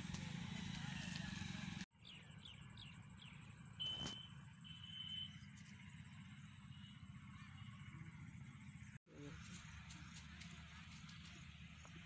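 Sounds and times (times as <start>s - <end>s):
short high whistle: 3.8s - 5.2s.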